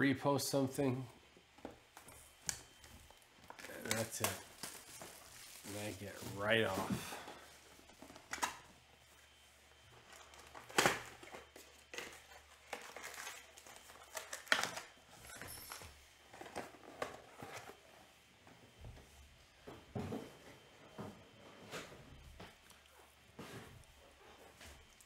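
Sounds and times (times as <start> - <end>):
cards crackling and tapping: 1.6 - 6.8
plastic wrappers crinkling: 2.7 - 8.7, 9.3 - 15.8.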